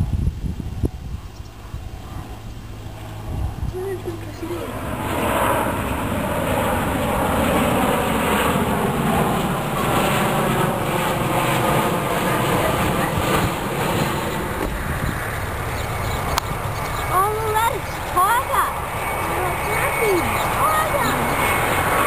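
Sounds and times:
jet airliner passing overhead: 0.0 - 22.0.

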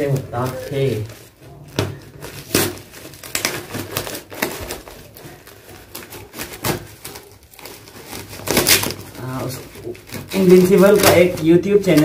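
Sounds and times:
plastic wrap crinkling: 0.0 - 12.0.

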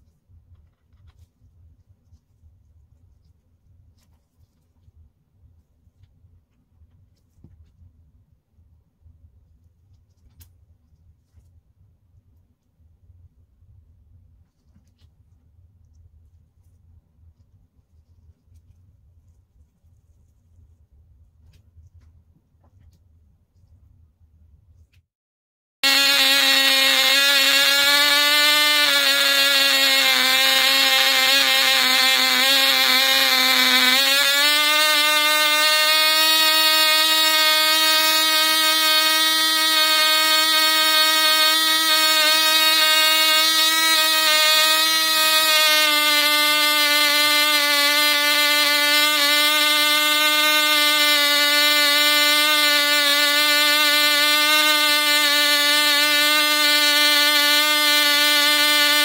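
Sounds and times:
model engine high-pitched whine: 25.8 - 59.0.

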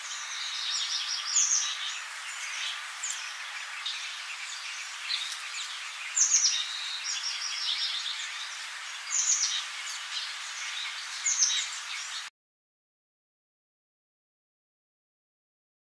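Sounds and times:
birds chirping: 0.0 - 12.3
steady background hiss: 0.0 - 12.3.

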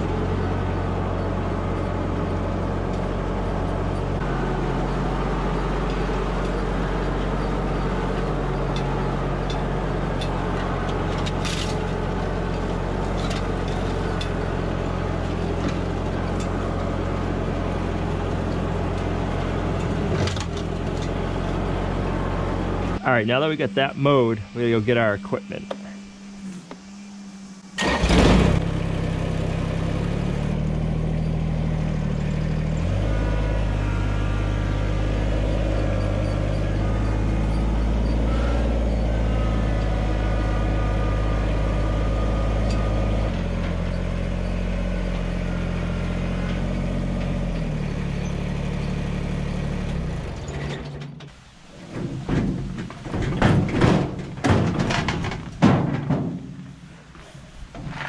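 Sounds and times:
tractor engine running: 0.0 - 26.9, 27.5 - 58.0
knocks and thumps of metal drum: 51.9 - 56.6.

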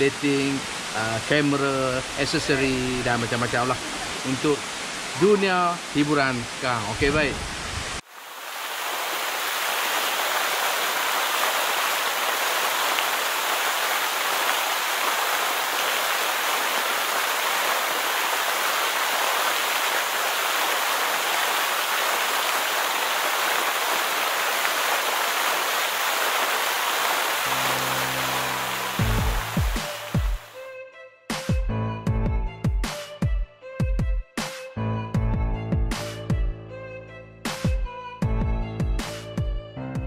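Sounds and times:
waterfall rushing: 0.0 - 30.6
music with low beat: 29.0 - 30.4, 37.5 - 40.0.

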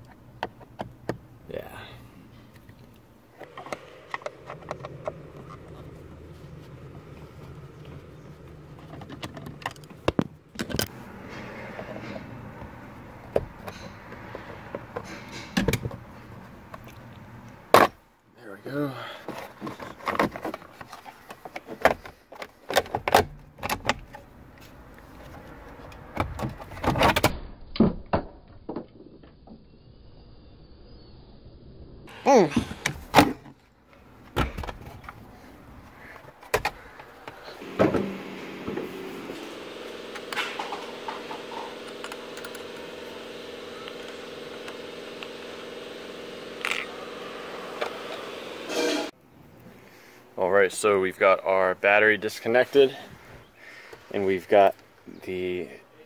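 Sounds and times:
sharp knocks and clunks: 36.4 - 39.0.

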